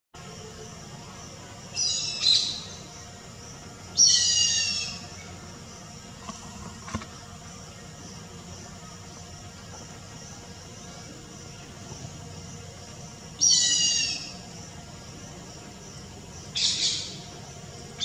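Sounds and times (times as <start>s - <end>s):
hornbill high-pitched calls: 1.7s - 2.9s, 3.9s - 5.2s, 13.4s - 14.5s, 16.5s - 17.3s.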